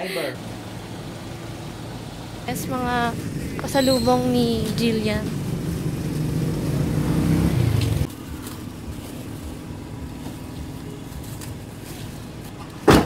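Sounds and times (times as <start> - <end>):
vehicle engine idling: 0.0 - 12.8.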